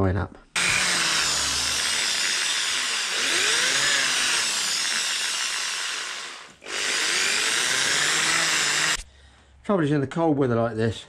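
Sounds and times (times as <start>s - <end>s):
electric drill boring through wood: 0.6s - 9.0s.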